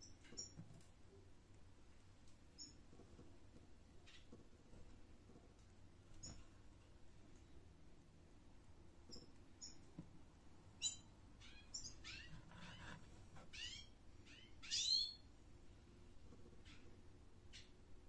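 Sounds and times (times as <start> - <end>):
small bird chirping: 0.0 - 0.6, 2.5 - 3.0, 4.0 - 4.4, 6.1 - 6.5, 9.0 - 10.0, 10.7 - 15.3, 16.6 - 17.9.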